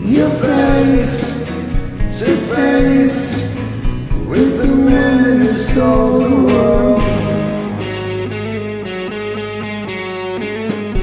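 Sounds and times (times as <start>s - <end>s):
duet singing held notes: 0.0s - 9.5s
rock backing track: 0.0s - 11.0s.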